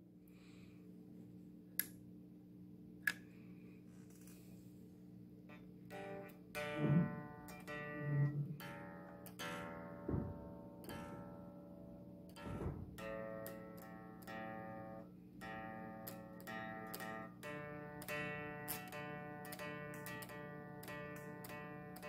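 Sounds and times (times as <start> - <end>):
swing electric guitar: 5.9 - 11.3
short low thump: 10.1 - 10.5, 12.4 - 13.0.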